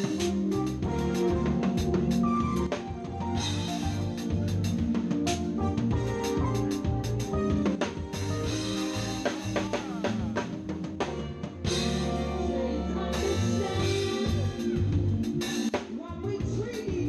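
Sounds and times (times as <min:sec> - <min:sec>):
drum kit beat: 0:00.0 - 0:17.0
electric bass: 0:00.0 - 0:17.0
keyboard chords: 0:00.0 - 0:17.0
person singing: 0:08.0 - 0:10.8, 0:11.7 - 0:17.0.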